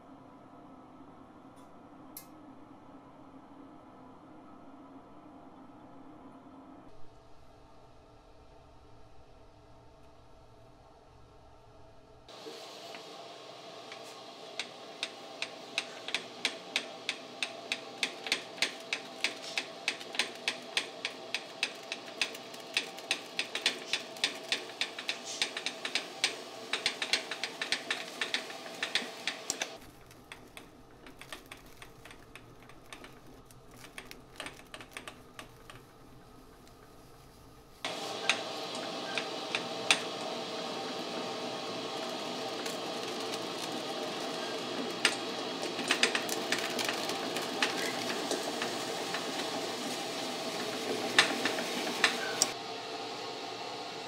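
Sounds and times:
metal lathe running: 13.8s - 29.8s, 37.9s - 52.6s.

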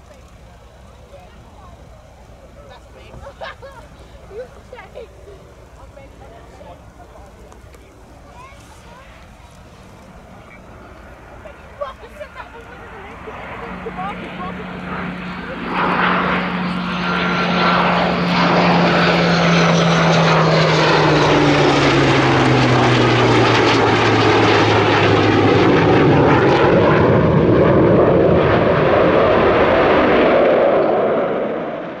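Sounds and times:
jet noise: 0.0s - 32.0s
low falling engine tone: 0.0s - 32.0s.

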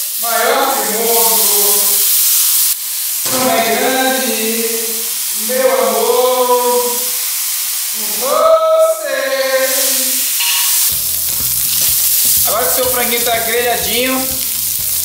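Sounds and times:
chicken sizzling in a wok: 0.0s - 15.0s
person singing long notes: 3.3s - 7.2s, 8.0s - 10.2s.

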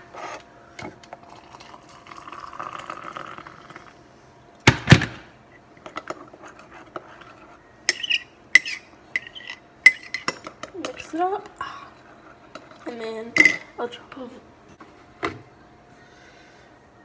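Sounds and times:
water pouring into cup: 1.2s - 3.9s.

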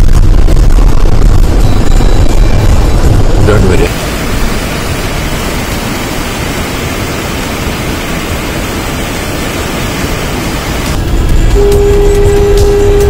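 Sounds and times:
small waterfall rushing: 3.9s - 12.5s.

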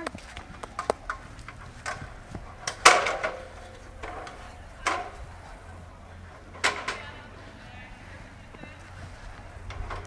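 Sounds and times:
ladder clanking against metal scaffold: 0.6s - 5.4s, 6.5s - 7.3s.

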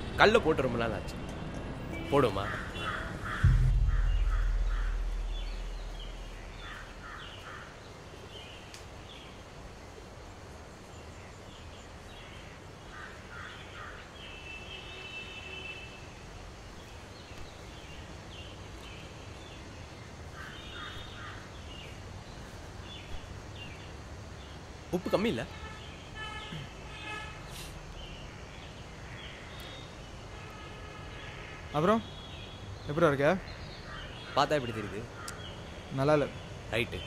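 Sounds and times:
birds calling: 1.9s - 9.6s, 10.8s - 15.4s, 16.5s - 37.0s
deep low boom: 3.2s - 7.2s.

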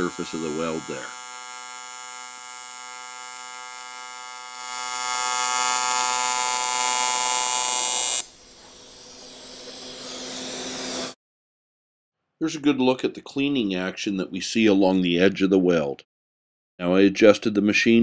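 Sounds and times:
arc welding buzz: 0.0s - 11.2s.

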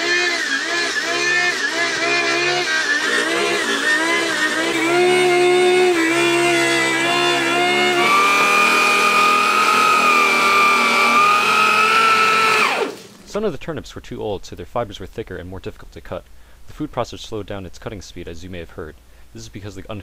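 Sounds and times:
food processor motor whine: 0.0s - 13.3s.

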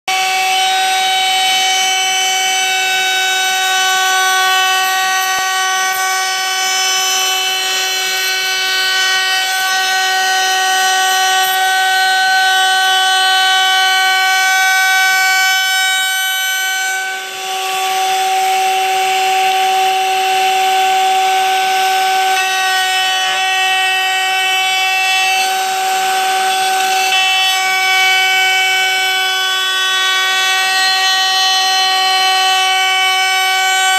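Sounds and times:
router bit cutting wood: 0.1s - 33.9s
router whining: 0.1s - 33.9s.

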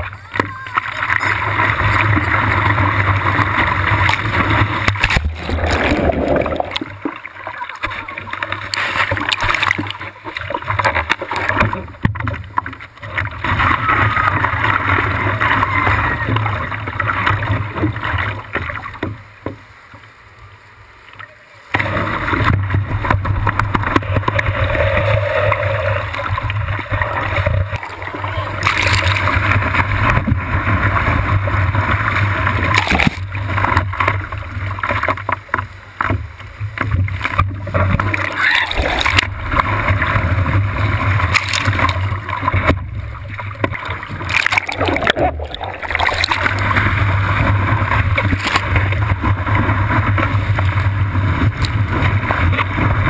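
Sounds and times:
water rushing and splashing: 0.0s - 53.0s.

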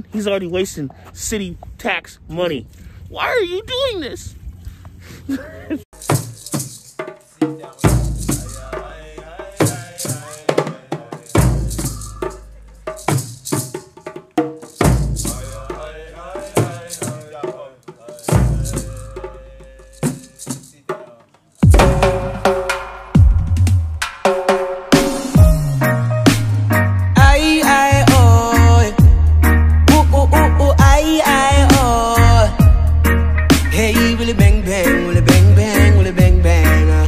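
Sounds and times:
background music: 21.7s - 37.0s
deep bass note: 25.4s - 37.0s.

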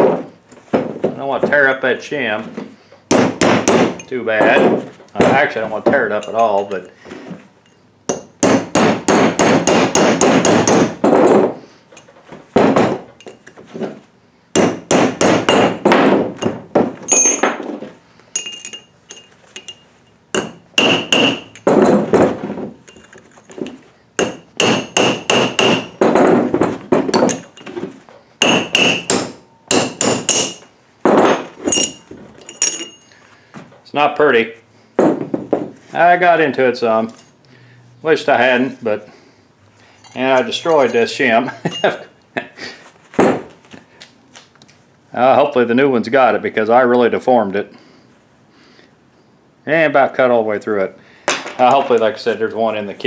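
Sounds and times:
hammer striking chisel on metal: 3.1s - 6.9s, 8.1s - 11.0s, 14.5s - 17.6s, 18.4s - 22.0s, 24.2s - 26.3s, 28.4s - 33.2s.

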